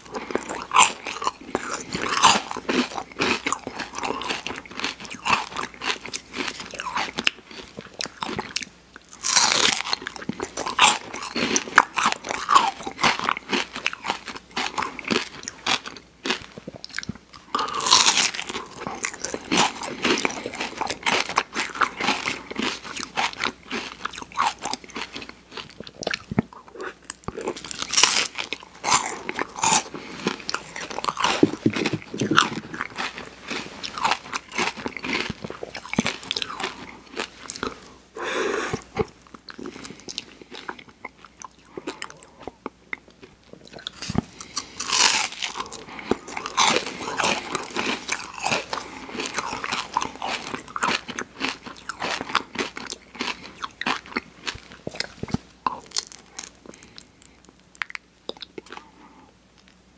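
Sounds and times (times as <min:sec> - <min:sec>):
crunching wafer cone: 0:00.0 - 0:42.6, 0:43.2 - 0:58.9
wet mouth sounds: 0:28.7 - 0:56.9.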